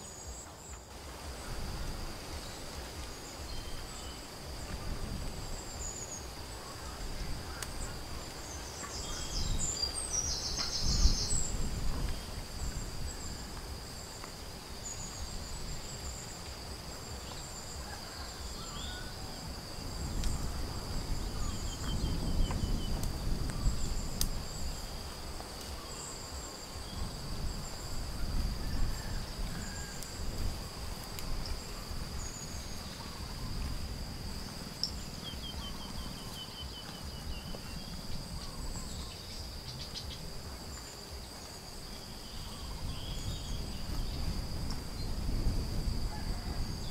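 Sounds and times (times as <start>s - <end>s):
faint bird chirps: 2.3s - 13.5s.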